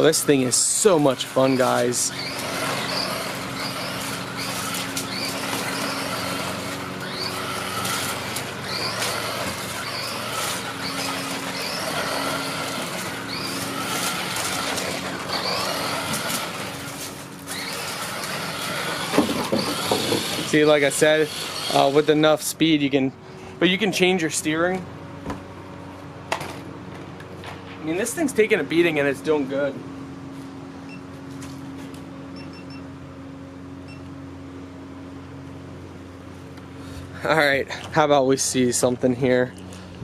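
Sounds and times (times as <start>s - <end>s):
toy car electric motor whirring: 0.0s - 22.4s
tyres rumbling over wooden boards: 2.2s - 20.7s.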